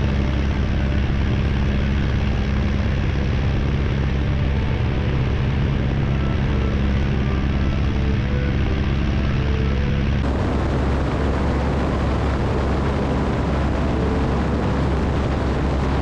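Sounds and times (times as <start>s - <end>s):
biplane engine and propeller: 0.0s - 16.0s
wind rushing over wing: 10.1s - 16.0s.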